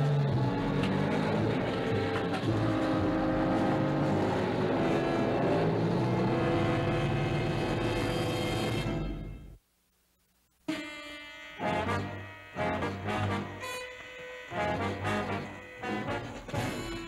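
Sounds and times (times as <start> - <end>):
truck engine labouring uphill: 0.0 - 8.8, 11.6 - 17.0.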